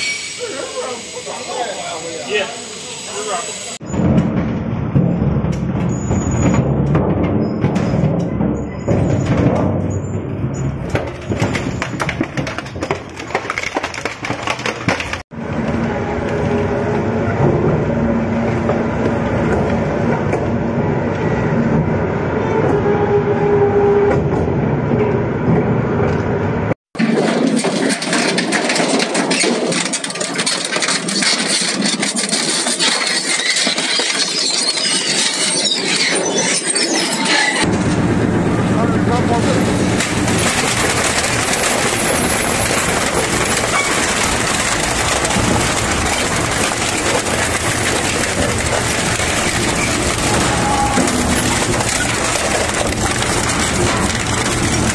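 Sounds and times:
sharp knocks and cracks: 10.8 - 15.4, 40.0 - 54.9
industrial machinery grinding: 27.0 - 54.9.

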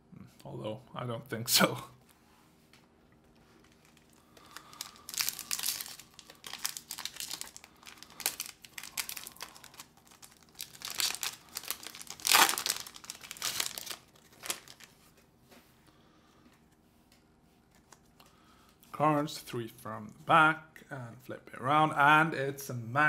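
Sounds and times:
wrapper crinkling and tearing: 3.3 - 15.0.

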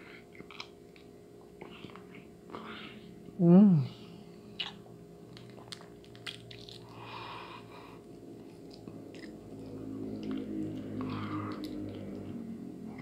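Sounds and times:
eggshell cracking: 4.6 - 6.9
chewing: 4.6 - 7.1, 8.0 - 12.4.

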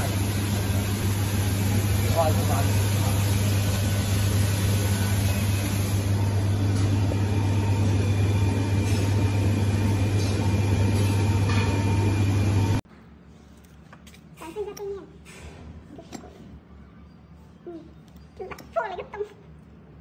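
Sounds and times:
printer mechanical hum: 0.0 - 12.8.

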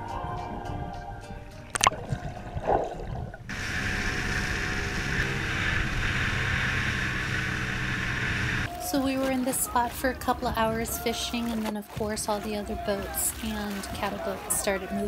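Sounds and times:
underwater splashing and bubbling: 1.7 - 8.7
motorboat engine: 3.5 - 8.7.

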